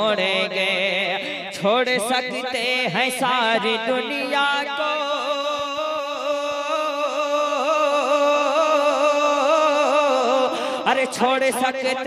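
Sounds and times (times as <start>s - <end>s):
man singing with vibrato: 0.0s - 12.0s.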